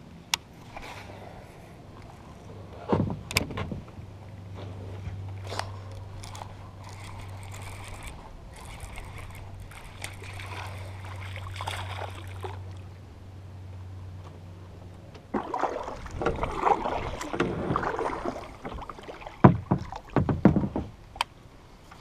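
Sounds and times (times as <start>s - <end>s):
water sloshing: 4.6s - 13.0s, 15.2s - 21.2s
reel clicks: 5.4s - 12.3s
fishing reel whirring: 5.9s - 12.4s.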